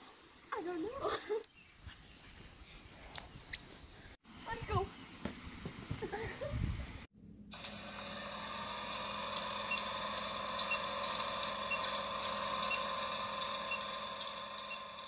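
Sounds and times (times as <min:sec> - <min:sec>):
voice: 0:00.5 - 0:01.4, 0:04.5 - 0:04.9
mechanical whirring hum: 0:07.2 - 0:15.0.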